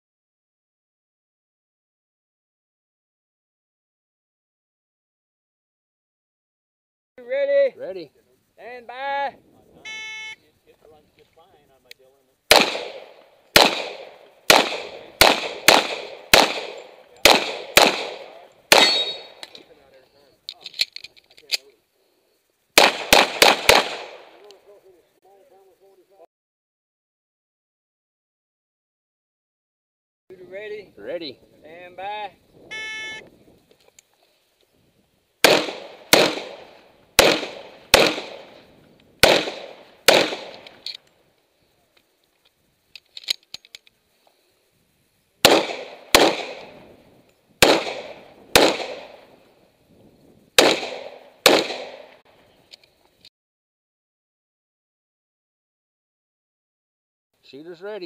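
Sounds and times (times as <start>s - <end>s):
pistol shots with echo: 12.5s - 19.5s, 22.8s - 24.4s, 35.4s - 38.6s, 39.2s - 40.8s, 45.4s - 46.8s, 47.6s - 49.3s, 50.6s - 52.2s.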